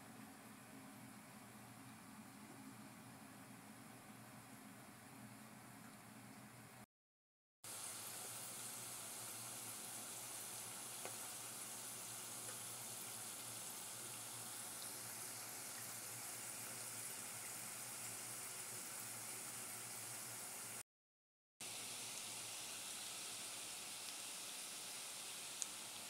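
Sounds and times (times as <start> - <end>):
potatoes sizzling in hot oil: 7.7 - 20.8, 21.6 - 26.0.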